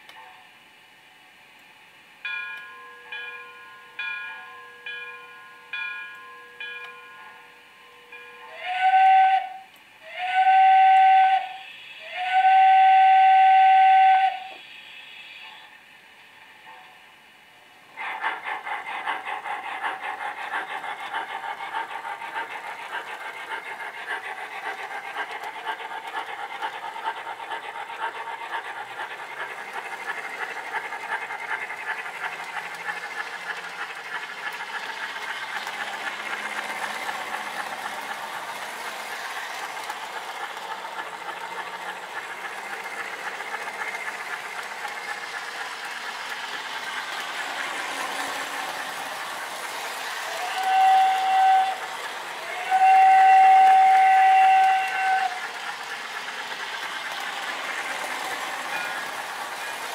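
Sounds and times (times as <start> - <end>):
model steam locomotive chuffing: 0.0 - 59.9
wheels rolling on metal rails: 19.1 - 59.9.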